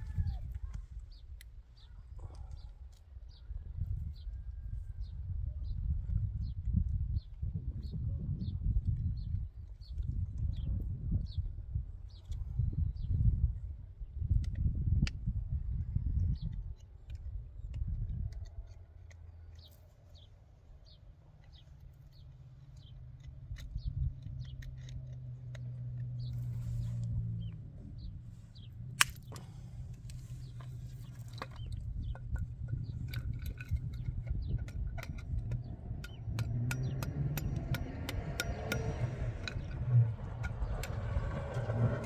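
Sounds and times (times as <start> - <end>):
wire twisted with pliers: 21.4 - 27.2, 28.9 - 41.7.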